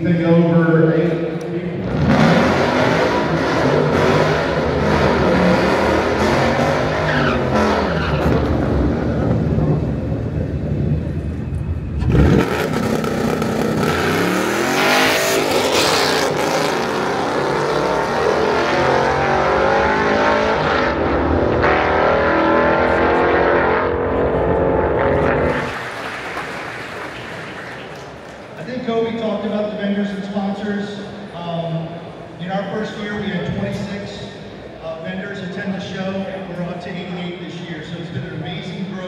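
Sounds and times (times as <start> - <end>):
car engine revving hard: 1.8 - 9.8, 12.0 - 25.8.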